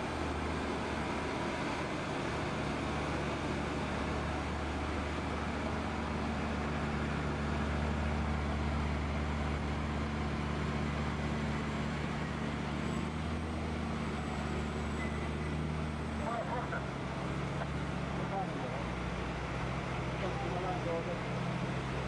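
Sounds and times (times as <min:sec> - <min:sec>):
truck diesel engine running: 0:00.0 - 0:22.0.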